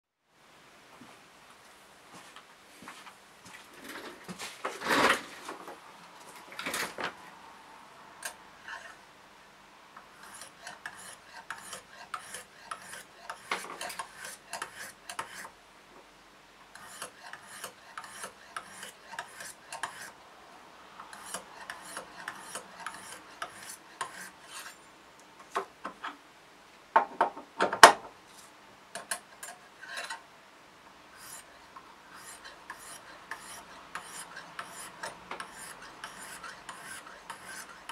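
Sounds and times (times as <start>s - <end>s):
sharpening stone scraping knife blade: 10.2s - 15.5s, 16.8s - 20.2s, 21.1s - 24.8s, 31.2s - 31.5s, 32.1s - 37.9s.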